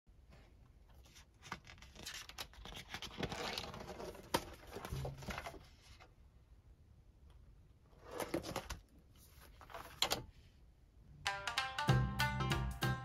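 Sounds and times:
paper pages rustling and flapping: 0.9s - 6.1s, 8.0s - 10.2s.

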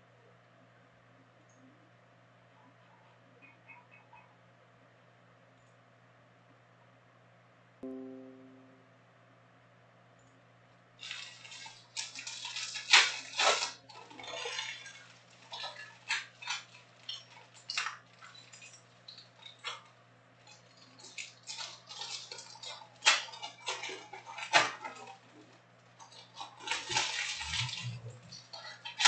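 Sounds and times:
faint low hum: 0.0s - 29.0s
foil wrappers crinkling: 11.0s - 29.0s.

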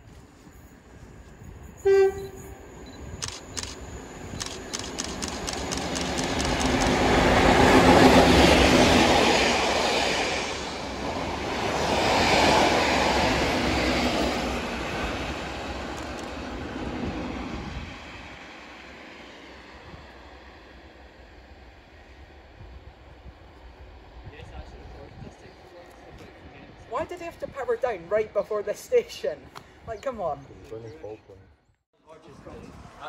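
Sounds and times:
diesel train passing: 0.0s - 29.5s
train horn toot: 1.8s - 2.8s.

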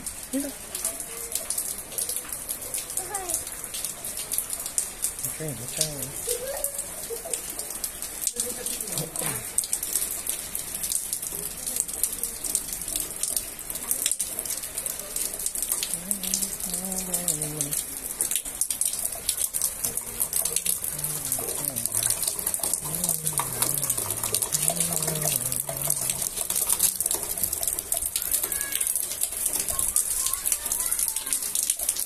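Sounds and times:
heavy rain on concrete: 0.0s - 32.0s
person talking indistinctly: 5.2s - 6.3s, 8.8s - 9.5s, 15.9s - 17.9s, 19.9s - 27.1s.

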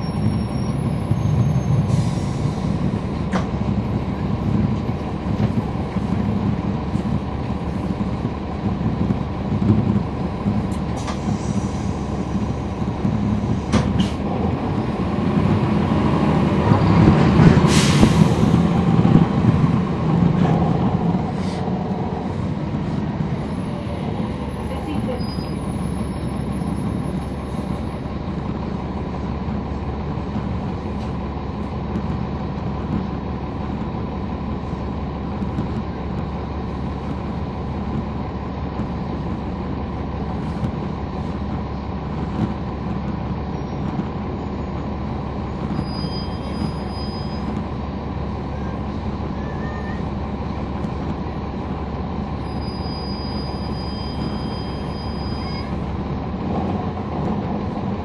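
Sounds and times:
bus diesel engine drone: 0.0s - 58.0s
steady whistle: 52.4s - 55.7s.

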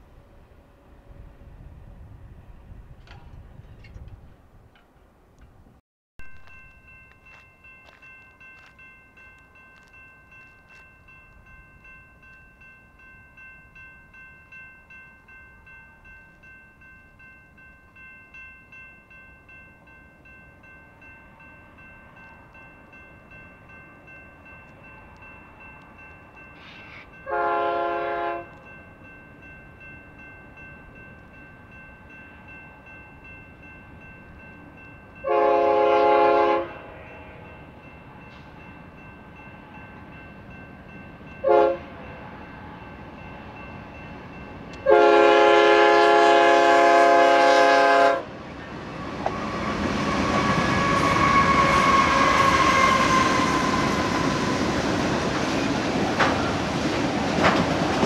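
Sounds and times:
crossing bell ringing: 6.2s - 58.0s
locomotive air horn blasts: 26.9s - 28.5s, 35.2s - 37.4s, 41.4s - 41.9s, 44.8s - 48.3s, 49.3s - 54.6s.

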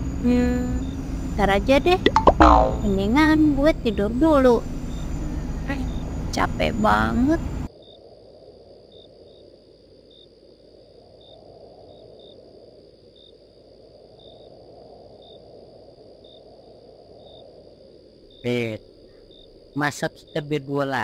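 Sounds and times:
steady low rumble: 0.0s - 7.7s
crickets chirping: 0.0s - 21.0s.

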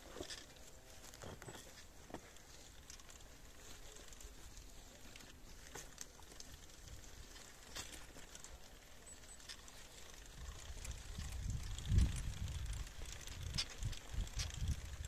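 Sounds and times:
faint outdoor ambience: 0.0s - 15.0s
light clicks and crackles: 0.0s - 15.0s.

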